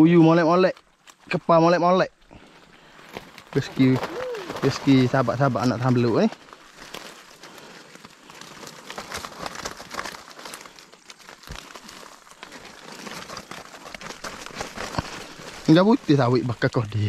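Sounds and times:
fish trap rustling and crackling: 0:02.7 - 0:16.8.

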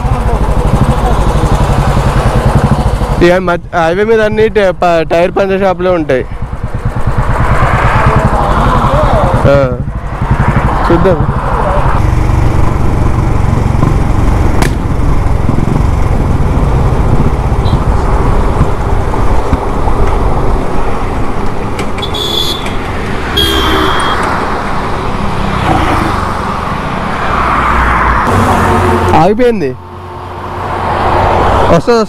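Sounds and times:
motorcycle engine running: 0:00.0 - 0:27.1, 0:28.2 - 0:31.7
wind and road noise: 0:00.0 - 0:32.0
car horn toots: 0:22.0 - 0:22.8, 0:23.4 - 0:24.3, 0:28.3 - 0:29.4.

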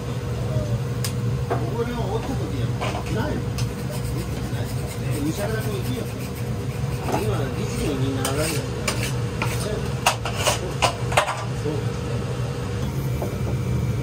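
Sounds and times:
steady low hum: 0:00.0 - 0:14.0
spatulas scraping steel griddle: 0:03.7 - 0:11.0.

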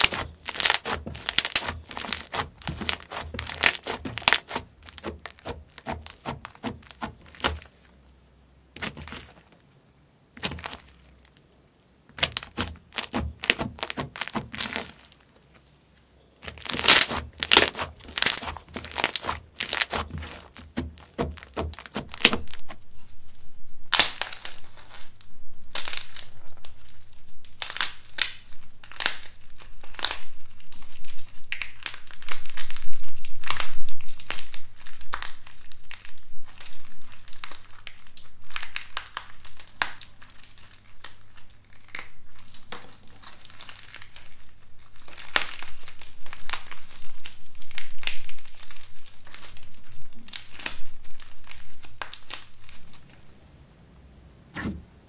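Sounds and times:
dried clay crackling and crunching: 0:00.0 - 0:53.4.

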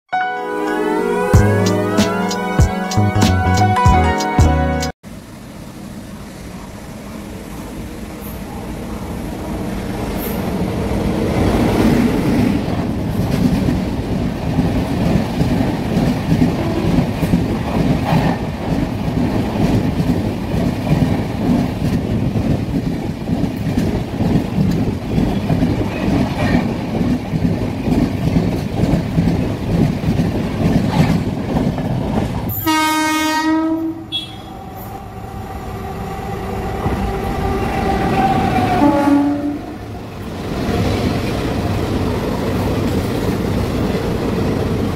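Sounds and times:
locomotive horn: 0:00.1 - 0:04.9, 0:32.5 - 0:34.9, 0:36.2 - 0:39.8
train approaching: 0:00.2 - 0:44.9
train wheels on rails: 0:05.1 - 0:44.9.

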